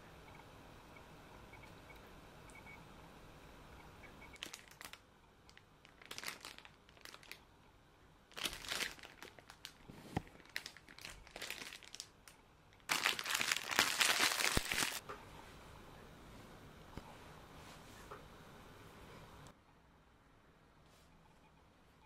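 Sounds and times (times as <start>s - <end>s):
plastic bag crinkling: 4.4s - 7.4s, 8.3s - 15.0s.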